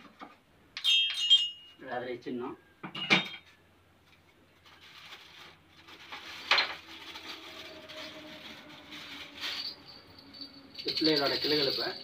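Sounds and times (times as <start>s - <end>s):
soft rustling: 4.0s - 10.5s
objects clattering: 4.6s - 12.0s.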